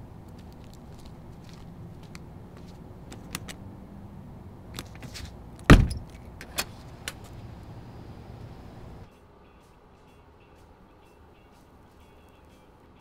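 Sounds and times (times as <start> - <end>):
loud door thud: 5.6 - 6.7
door knob clicks and rattles: 5.6 - 7.2.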